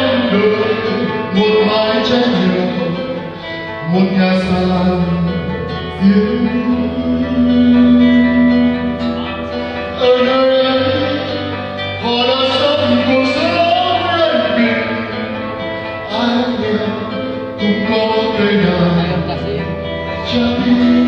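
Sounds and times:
acoustic guitar: 0:00.0 - 0:21.0
man singing into microphone: 0:00.0 - 0:21.0.

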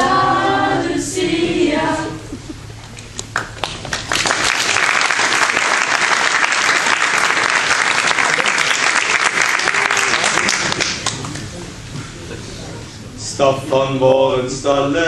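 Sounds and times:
audience applauding: 0:03.3 - 0:11.6.

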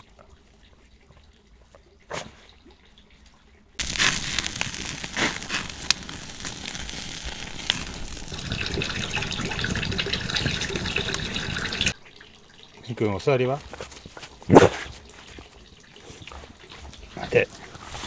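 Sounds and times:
burning wood popping: 0:03.8 - 0:12.0
meat sizzling on grill: 0:03.8 - 0:12.0
wood fire crackling: 0:03.8 - 0:12.0.

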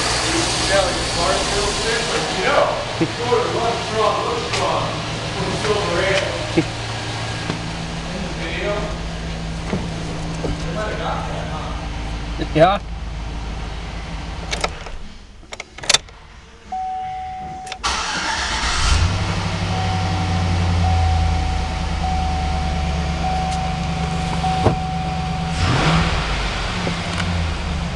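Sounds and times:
truck engine idling: 0:00.0 - 0:17.2, 0:17.8 - 0:27.9
dashboard warning chime beeps: 0:16.7 - 0:17.8, 0:19.7 - 0:25.8
single chime tone: 0:16.8 - 0:17.8, 0:19.9 - 0:25.4.

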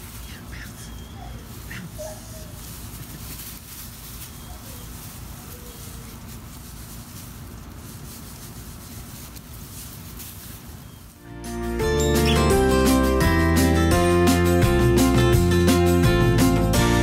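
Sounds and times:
rustling of puppies on grass: 0:00.0 - 0:13.3.

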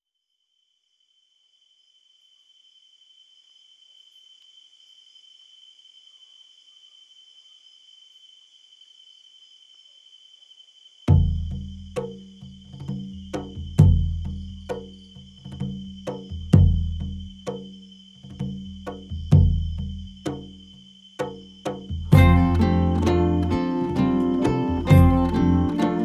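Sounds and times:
insects trilling: 0:00.1 - 0:26.0
loud low musical note: 0:22.1 - 0:26.0.

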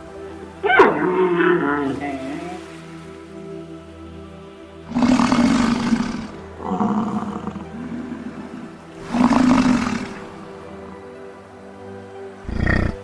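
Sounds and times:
bison roaring: 0:04.9 - 0:10.3, 0:12.5 - 0:13.0.

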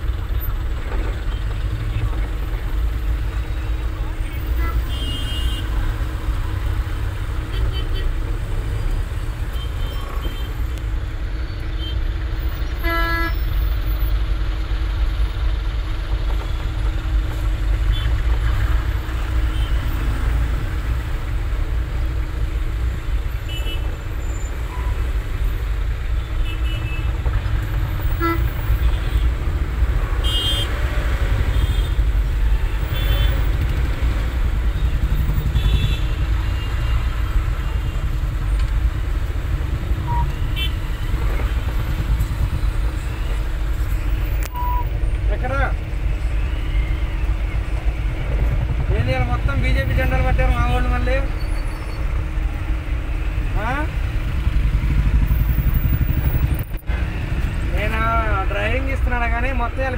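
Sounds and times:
car engine and road noise: 0:00.0 - 0:59.9
vehicle horn toots: 0:12.8 - 0:13.5, 0:28.0 - 0:29.2, 0:30.2 - 0:30.7, 0:35.5 - 0:37.0, 0:40.1 - 0:40.8.

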